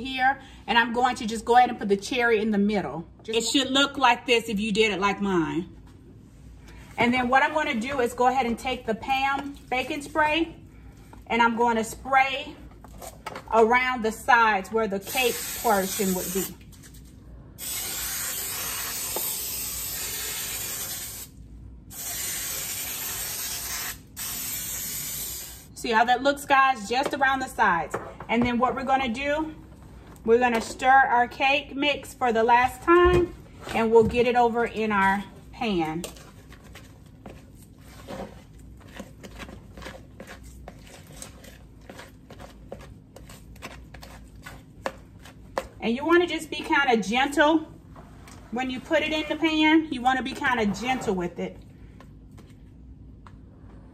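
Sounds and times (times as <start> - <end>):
aerosol spray hissing: 15.1 - 16.4, 17.6 - 21.3, 21.9 - 25.7
spatula scraping batter in bowl: 36.2 - 45.6.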